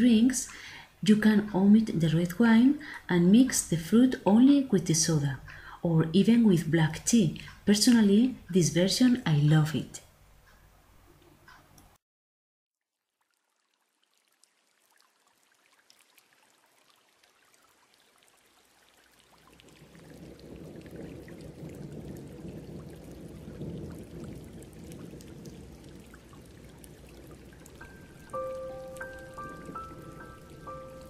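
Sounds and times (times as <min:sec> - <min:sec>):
soda fizzing with bubble pops: 0:13.0 - 0:31.0.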